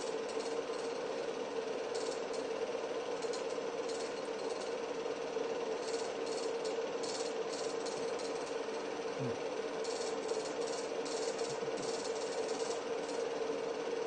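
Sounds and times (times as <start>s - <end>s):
film projector whirring: 0.0s - 14.0s.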